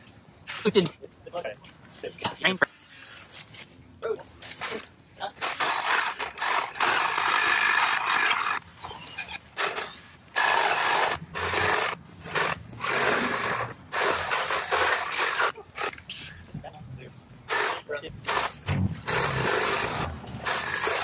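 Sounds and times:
chainsaw cutting branches: 9.6 - 15.9, 17.5 - 21.0.

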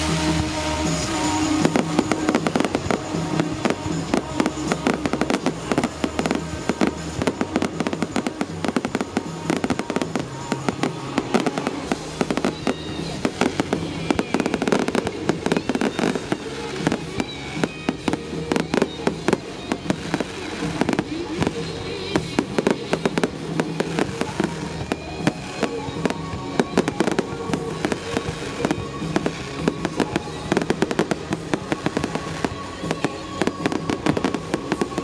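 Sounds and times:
fireworks cracks and bangs: 0.0 - 35.0
music playing: 0.0 - 35.0.

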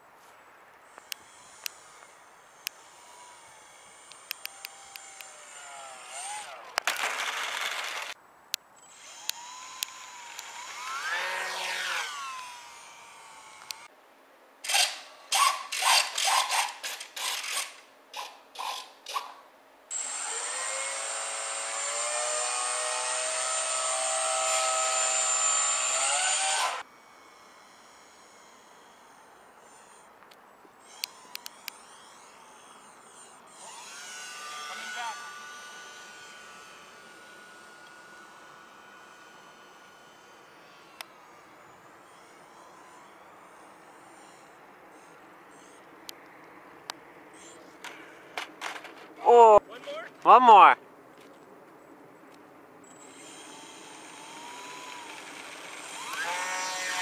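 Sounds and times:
electric motor and propeller whine: 0.8 - 8.2, 8.8 - 13.9, 19.9 - 48.9, 52.8 - 57.0.

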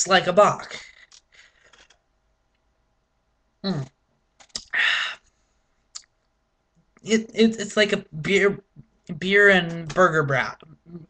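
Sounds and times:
mouth click: 4.4 - 4.8, 5.9 - 6.1.

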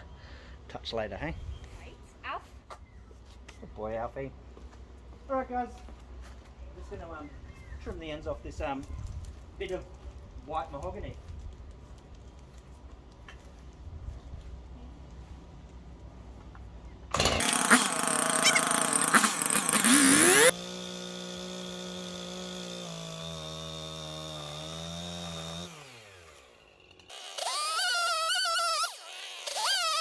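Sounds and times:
chainsaw cutting wood: 17.1 - 30.0
chainsaw engine revving: 17.1 - 30.0.

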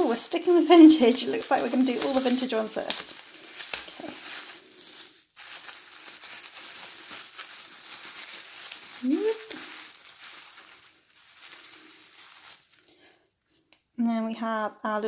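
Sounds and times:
bubble wrap crinkling: 0.0 - 13.2
person humming: 9.0 - 9.6.

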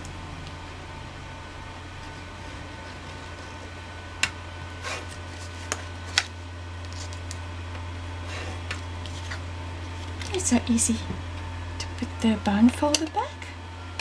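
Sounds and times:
steady low hum: 0.0 - 14.0
tool scraping on paper: 4.8 - 5.8.

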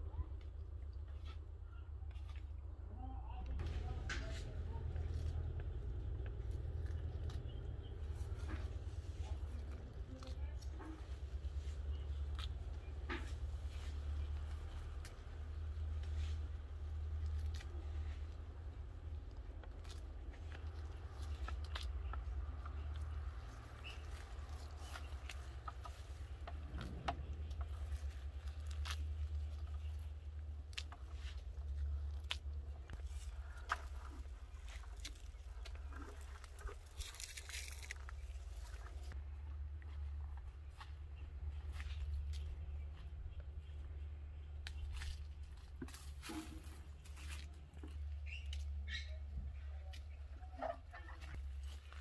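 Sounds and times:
low rumble: 0.0 - 48.2
petals snapping and rustling: 3.5 - 39.2.

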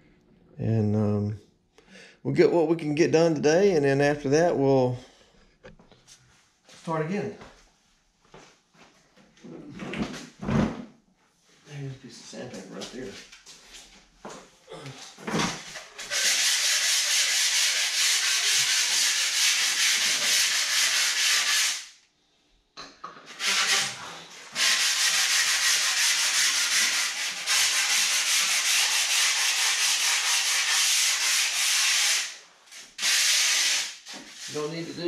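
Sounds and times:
sanding block scrubbing foam: 16.0 - 21.8, 23.3 - 32.4, 33.0 - 35.0.

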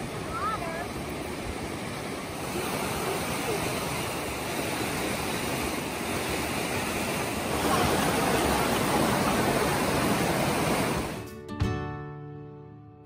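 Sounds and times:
creek rushing over rocks: 0.0 - 11.2.

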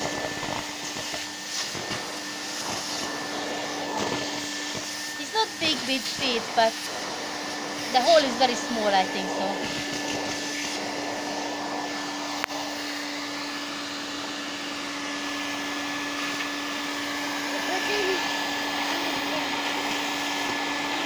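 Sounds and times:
vacuum cleaner running: 0.0 - 21.0.

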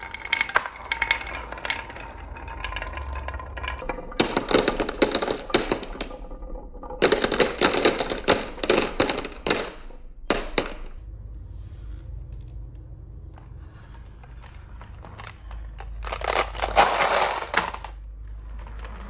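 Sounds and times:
glass marbles clattering down track: 0.0 - 11.0, 15.8 - 19.0.

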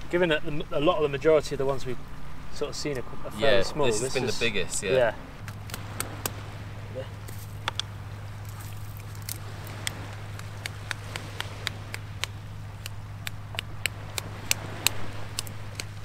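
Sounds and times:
steady low hum: 0.0 - 16.0
crab shell cracking: 8.5 - 16.0.

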